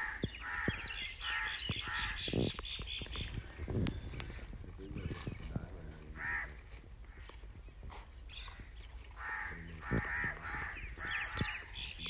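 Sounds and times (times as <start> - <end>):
crows cawing: 0.0 - 2.4, 5.9 - 7.4, 8.4 - 11.9.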